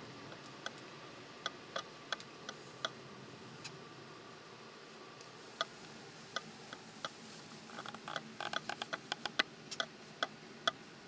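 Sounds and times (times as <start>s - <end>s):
car driving hum: 0.0s - 11.0s
sharp clicks inside car: 7.9s - 10.8s.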